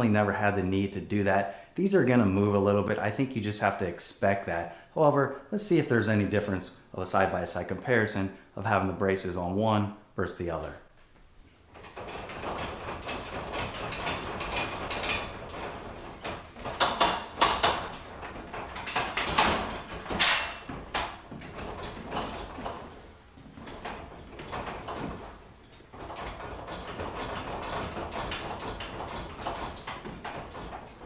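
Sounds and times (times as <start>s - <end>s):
footsteps on scaffold: 11.1s - 31.0s
scaffold frame rattling: 11.3s - 31.0s.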